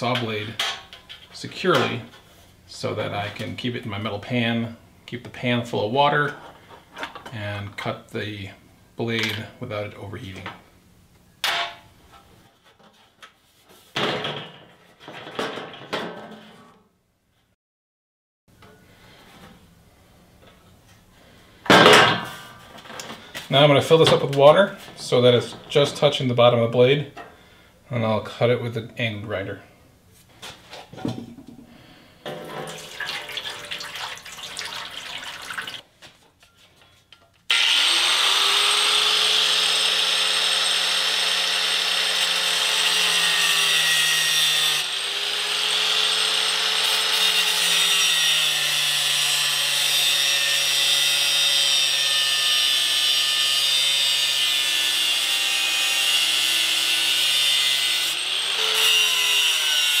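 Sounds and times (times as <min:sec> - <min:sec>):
water pouring into metal pan: 0:32.6 - 0:35.8
angle grinder cutting steel: 0:37.5 - 1:00.0.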